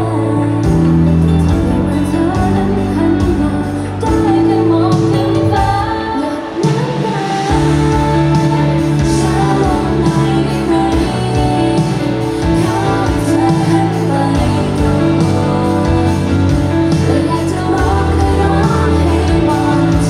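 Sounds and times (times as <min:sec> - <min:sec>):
pop backing track: 0:00.0 - 0:20.0
woman singing pop song: 0:00.0 - 0:20.0.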